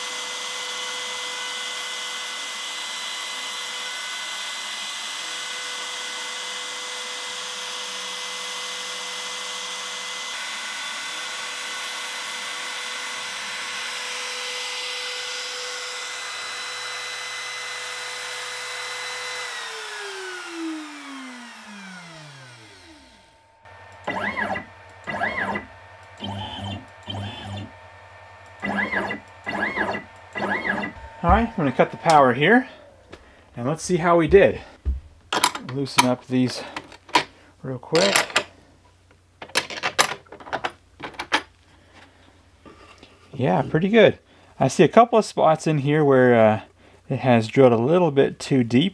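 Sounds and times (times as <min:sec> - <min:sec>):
router spindle whining: 0:11.8 - 0:34.4
short whirs rising and falling: 0:18.2 - 0:34.7.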